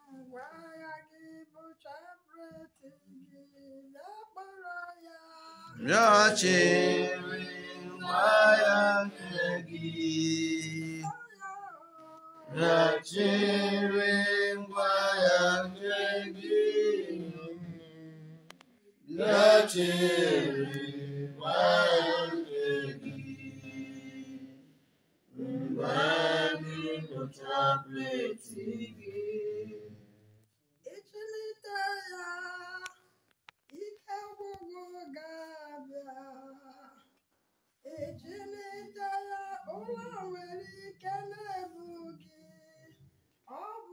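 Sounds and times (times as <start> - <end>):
voices singing a chant-like hymn: 5.7 - 11.1, 12.4 - 24.7, 25.3 - 30.1.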